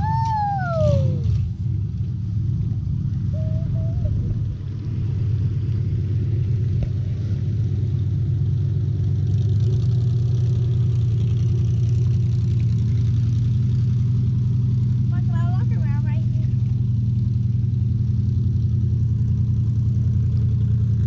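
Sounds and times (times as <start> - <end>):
engine droning through water: 0.0 - 21.0.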